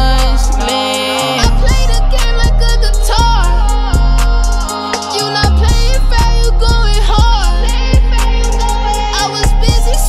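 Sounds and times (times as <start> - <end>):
deep sustained bass: 0.0 - 0.7, 1.4 - 4.7, 5.4 - 10.0
hi-hats ticking: 0.0 - 10.0
person singing: 0.0 - 10.0
kick drum: 5.5 - 7.4.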